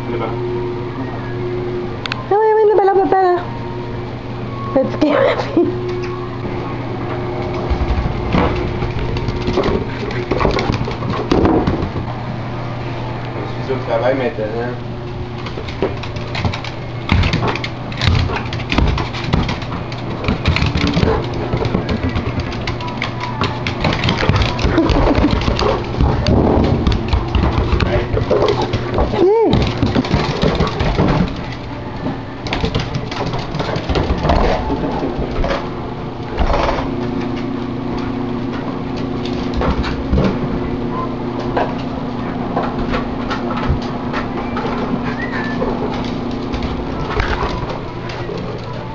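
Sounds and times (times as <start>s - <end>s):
low hum: 0.0s - 48.9s
dog claws clicking on floor: 15.4s - 31.6s.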